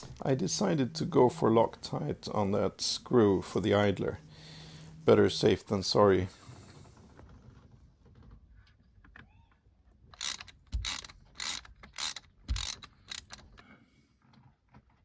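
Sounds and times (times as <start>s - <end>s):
ratchet wrench clicking: 10.2s - 13.5s.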